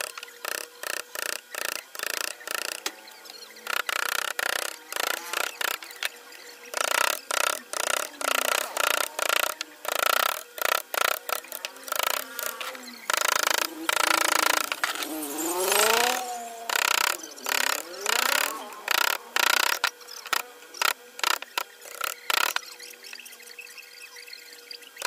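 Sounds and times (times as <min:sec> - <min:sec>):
chisel scraping wood: 0:06.7 - 0:22.7.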